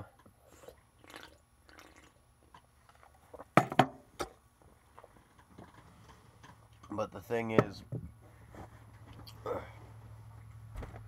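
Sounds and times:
sipping and swallowing: 0.4s - 3.6s.

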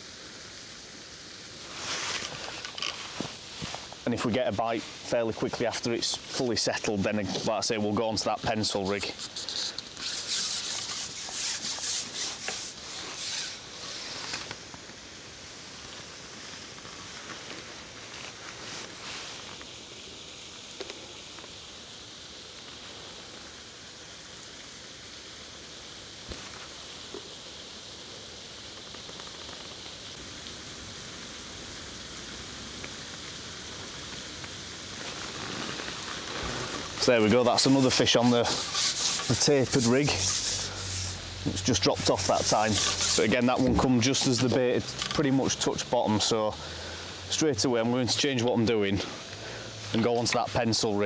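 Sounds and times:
faint outdoor ambience hiss: 0.0s - 51.0s
fishing pole rubbing through hands: 1.7s - 4.0s, 8.7s - 14.6s, 35.2s - 45.1s.

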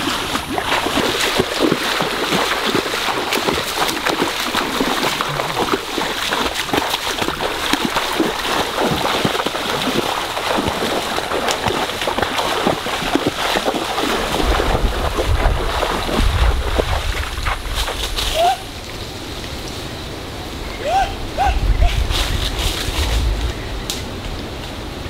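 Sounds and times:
splashing and sloshing in water: 0.0s - 19.0s
flowing stream: 0.0s - 25.0s.

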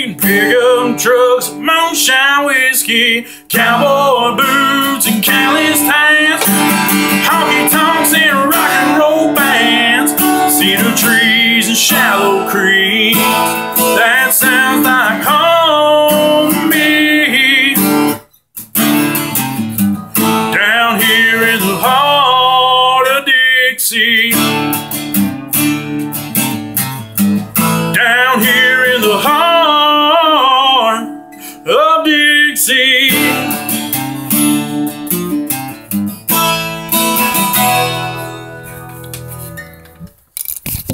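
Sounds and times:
man singing with vibrato: 0.0s - 18.2s, 20.2s - 24.8s, 27.7s - 34.1s
acoustic guitar strumming: 0.0s - 40.2s.

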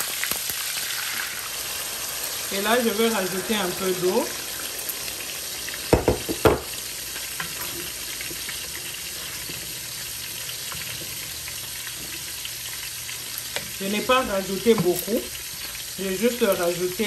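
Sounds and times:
sauce sizzling in a pot: 0.0s - 17.0s
sharp knocks: 5.9s - 6.7s.

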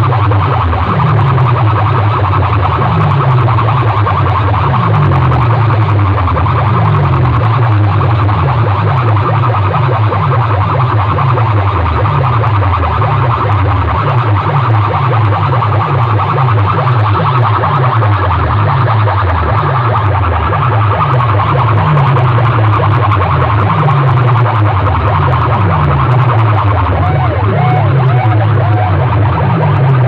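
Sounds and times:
loud dance music with bass hits: 0.0s - 30.0s.

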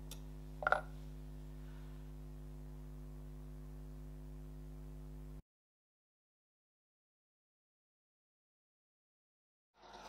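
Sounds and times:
low electrical hum: 0.0s - 5.4s.

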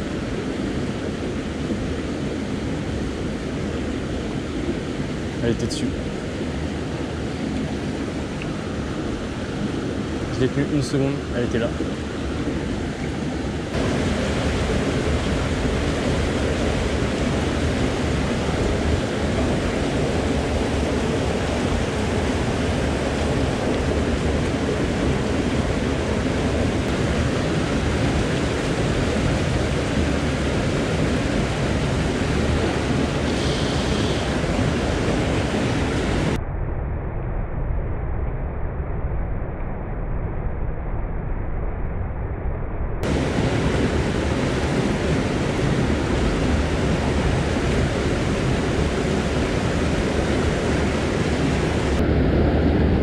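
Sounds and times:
stream pouring over cascade: 13.7s - 36.4s, 43.0s - 52.0s.

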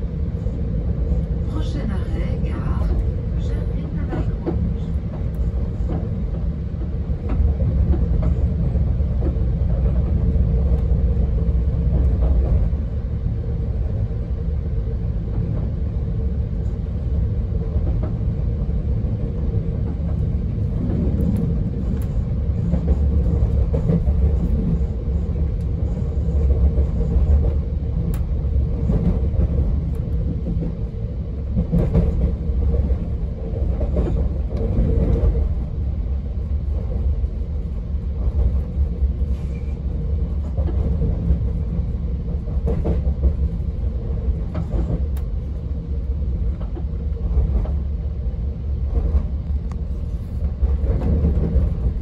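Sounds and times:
train wheels rumbling on rails: 0.0s - 52.0s.

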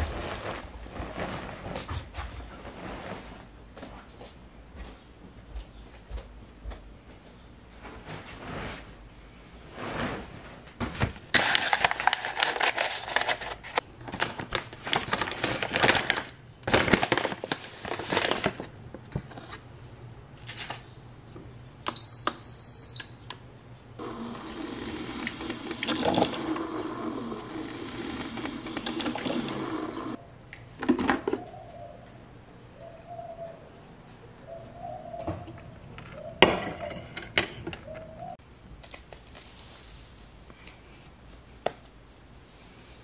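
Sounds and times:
packet rustling and crinkling: 11.3s - 19.4s
electronic beep: 22.0s - 23.2s
coffee maker humming: 24.0s - 30.2s.

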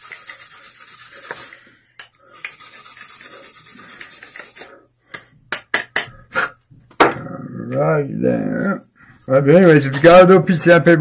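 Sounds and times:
tool scrubbing inside a plastic pipe: 0.0s - 4.8s.

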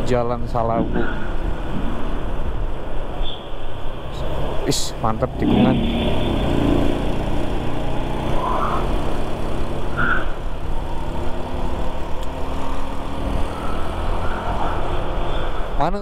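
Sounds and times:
road rumble: 0.0s - 16.0s
scooter engine drone: 3.8s - 15.9s.

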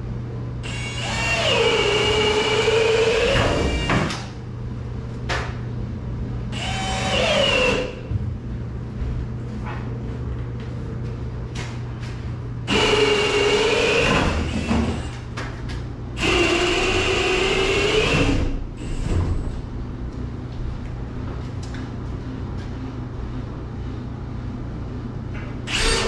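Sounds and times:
cordless drill into wood: 25.7s - 26.0s.

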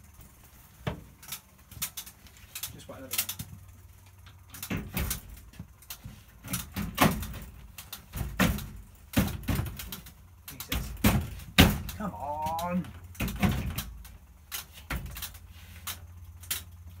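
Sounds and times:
low steady hum: 0.0s - 17.0s
washing machine clicks and clunks: 4.3s - 5.7s, 6.4s - 16.7s.

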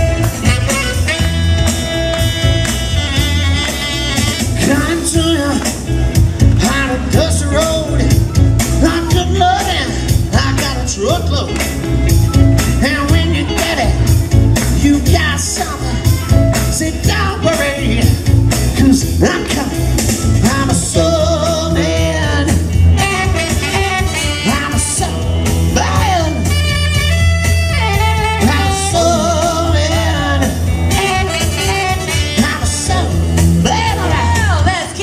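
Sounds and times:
blues-rock backing beat: 0.0s - 35.0s
man singing into microphone: 4.6s - 5.9s, 6.5s - 8.2s, 8.8s - 11.6s, 12.8s - 14.1s, 14.7s - 22.7s, 24.4s - 26.6s, 28.4s - 31.3s, 32.0s - 35.0s.

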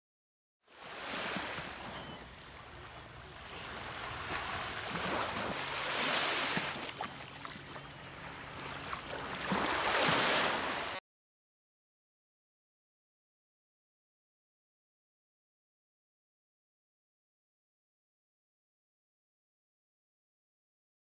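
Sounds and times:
small waves washing onto sand: 0.7s - 11.0s.

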